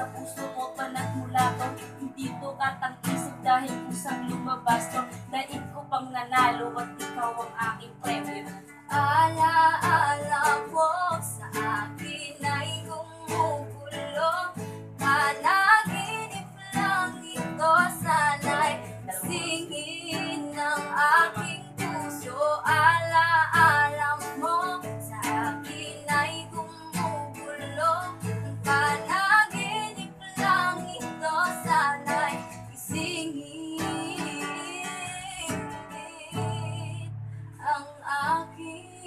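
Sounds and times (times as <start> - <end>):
girl singing with vibrato: 0.0 - 39.0
strummed acoustic guitar: 0.0 - 39.0.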